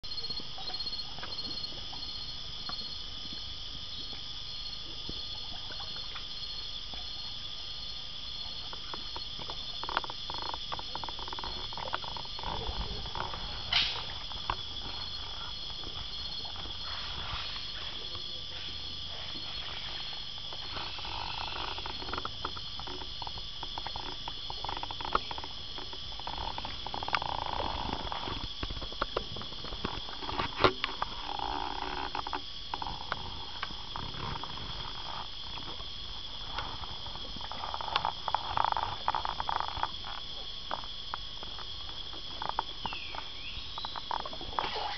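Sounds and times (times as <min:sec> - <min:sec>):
insects chorus: 0:00.0 - 0:44.9
pulsing insect trill: 0:00.0 - 0:44.9
water swishing: 0:04.2 - 0:32.3.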